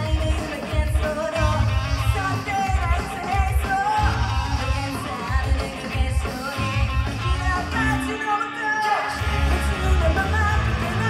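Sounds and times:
drum beat: 0.0 - 7.9
bass guitar: 0.0 - 8.3, 9.2 - 11.0
distorted electric guitars: 0.0 - 11.0
woman singing: 0.0 - 11.0.

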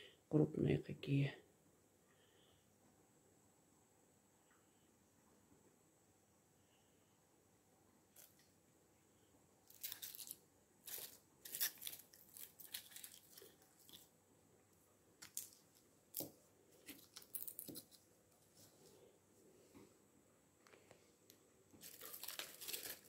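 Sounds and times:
garlic skins crackling and tearing: 9.7 - 14.1, 15.2 - 18.0, 21.8 - 23.0.

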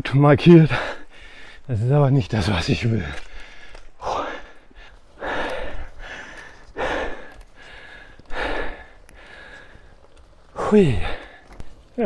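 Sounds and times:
person breathing hard: 0.7 - 1.7, 3.2 - 11.6.

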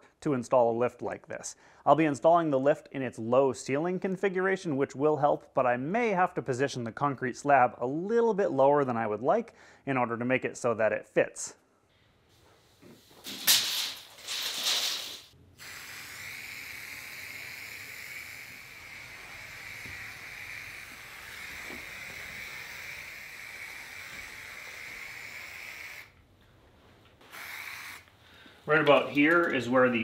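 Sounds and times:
aerosol paint spraying hiss: 12.3 - 26.2, 27.2 - 28.1.

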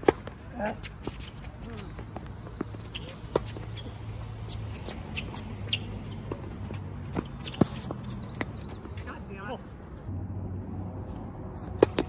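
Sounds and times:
tennis ball bouncing: 0.0 - 0.4, 1.0 - 9.1, 11.6 - 12.0
rackets hitting tennis ball: 0.0 - 9.4, 11.6 - 12.0
shoes scuffing on court: 0.0 - 9.9.

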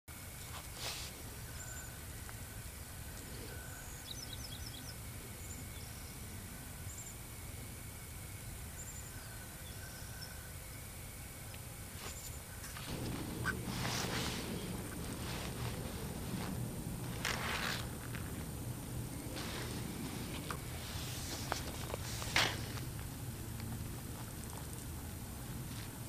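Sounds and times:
low background rumble: 1.2 - 26.0
bird chirps: 3.4 - 6.3.

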